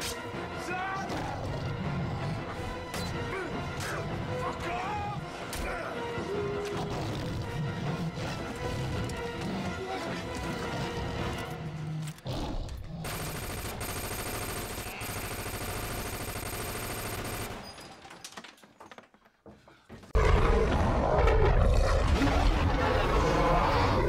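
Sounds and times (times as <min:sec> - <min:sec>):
growling werewolf roar: 0:20.2 - 0:24.0.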